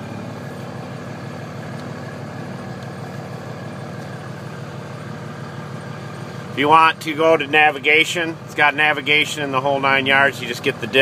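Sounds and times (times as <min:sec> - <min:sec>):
diesel engine idling: 0:00.0 - 0:11.0.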